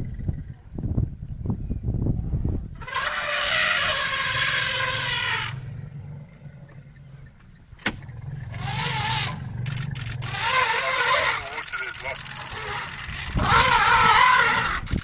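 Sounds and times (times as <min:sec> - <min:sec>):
elephants trumpeting: 0:02.8 - 0:07.2, 0:08.0 - 0:15.0
low engine hum: 0:04.7 - 0:15.0.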